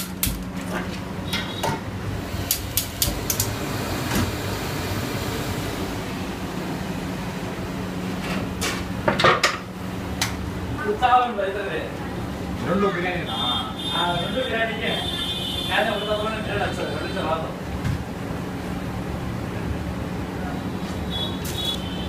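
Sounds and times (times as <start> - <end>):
gas burner hissing and humming: 0.0 - 13.5.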